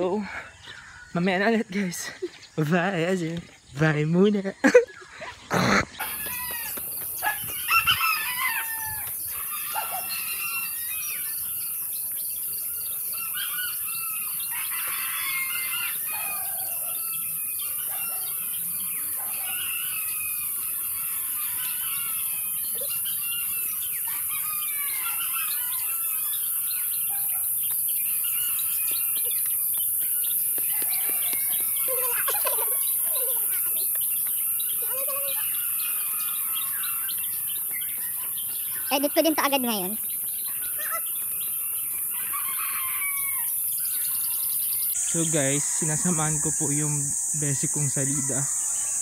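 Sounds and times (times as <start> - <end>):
birds chirping and calling: 0.0 - 49.0.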